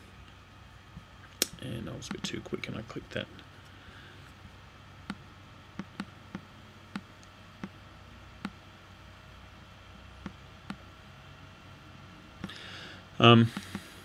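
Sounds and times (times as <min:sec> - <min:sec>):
faint background hum: 0:00.0 - 0:14.0
computer mouse clicks: 0:05.8 - 0:07.8, 0:13.5 - 0:13.9.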